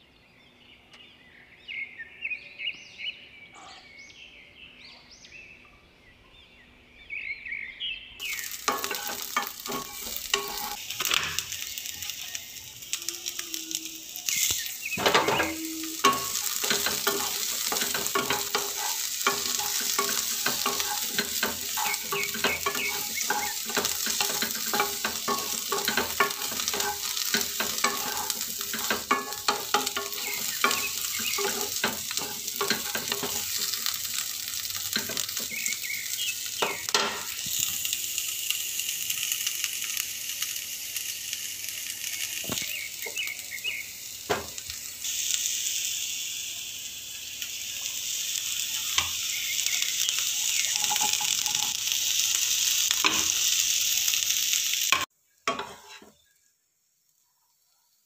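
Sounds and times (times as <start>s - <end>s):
spatula scraping and tapping pan: 8.2s - 11.6s, 14.4s - 35.8s, 36.5s - 37.7s, 44.3s - 44.6s, 50.6s - 51.9s, 52.9s - 53.5s, 54.9s - 56.1s
vegetables sizzling in a pan: 8.2s - 58.0s.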